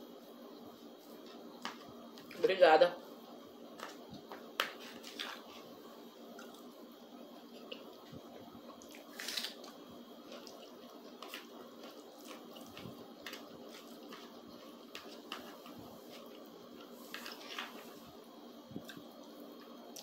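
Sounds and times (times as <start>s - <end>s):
wet chewing of food: 7.3s - 18.1s.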